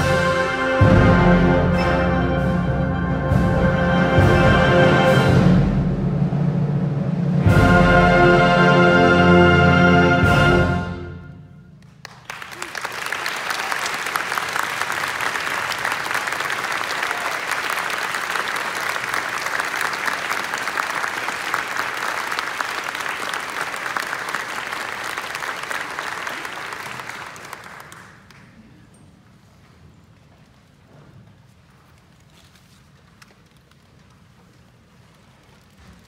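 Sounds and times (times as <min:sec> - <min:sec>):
audience applauding: 0:11.8 - 0:28.8.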